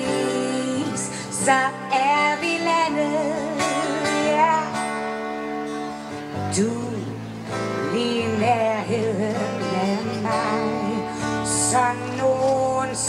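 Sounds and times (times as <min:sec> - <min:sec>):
person singing: 0:00.0 - 0:05.6, 0:06.2 - 0:13.0
instrumental backing: 0:00.0 - 0:13.0.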